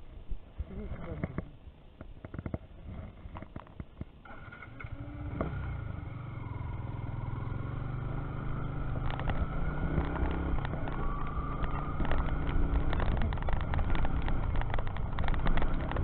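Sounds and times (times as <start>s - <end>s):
motorcycle engine running: 4.3s - 16.0s.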